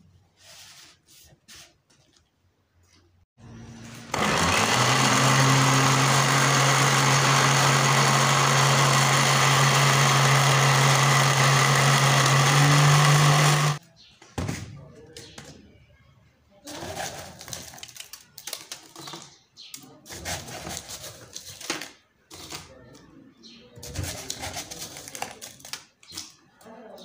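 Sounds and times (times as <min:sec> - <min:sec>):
blender motor humming: 0:03.4 - 0:13.8.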